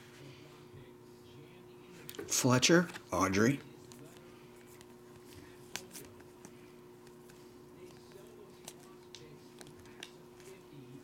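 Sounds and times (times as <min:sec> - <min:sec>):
low electrical hum: 0:00.0 - 0:11.0
cards sliding with light clicks: 0:03.8 - 0:10.6.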